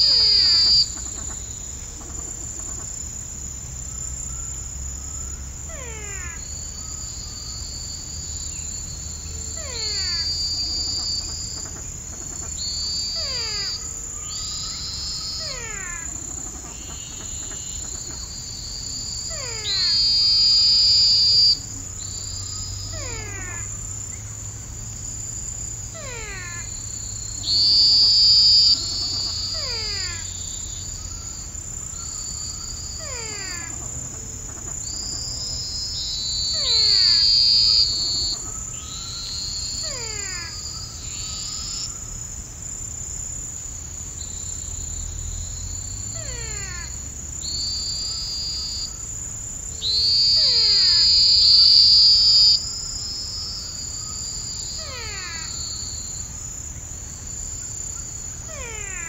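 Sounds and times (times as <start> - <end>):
falling whistled calls: 0.0 - 1.1, 5.8 - 11.8, 12.5 - 24.3, 26.0 - 33.8, 34.8 - 42.1, 44.8 - 49.0, 49.8 - 56.3
loud animal calls: 0.0 - 3.0, 25.9 - 42.0, 49.8 - 52.7, 53.4 - 56.2, 57.7 - 59.0
high-pitched insect trill: 0.0 - 59.0.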